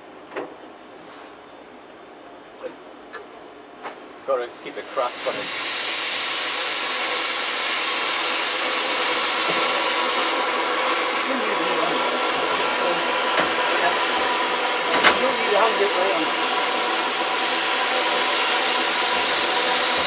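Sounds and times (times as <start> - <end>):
steam hissing: 4.4 - 20.0.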